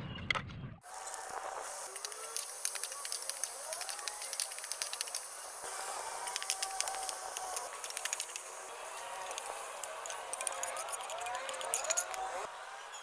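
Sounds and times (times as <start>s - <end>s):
vegetables sizzling in hot oil: 0.8s - 11.3s.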